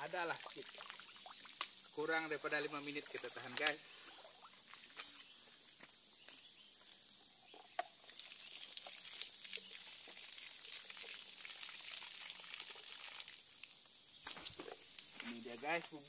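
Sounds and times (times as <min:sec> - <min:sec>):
water pouring and splattering: 0:00.0 - 0:16.0.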